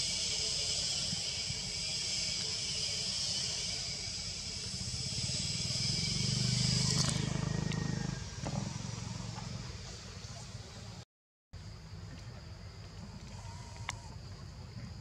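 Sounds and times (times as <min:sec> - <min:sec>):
shrill insect chorus: 0:00.0 - 0:11.0, 0:11.6 - 0:15.0
low motor hum: 0:02.3 - 0:11.0.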